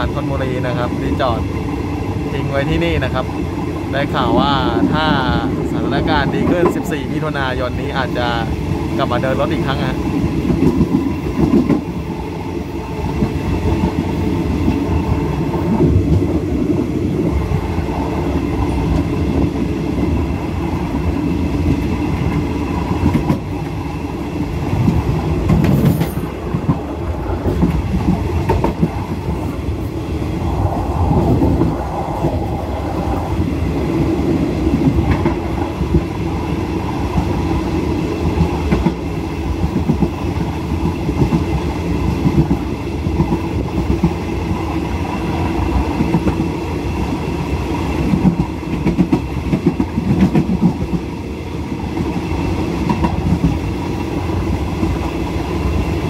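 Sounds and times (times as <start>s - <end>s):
clickety-clack over rail joints: 0.0s - 56.0s
train wheels rumbling on rails: 0.0s - 56.0s.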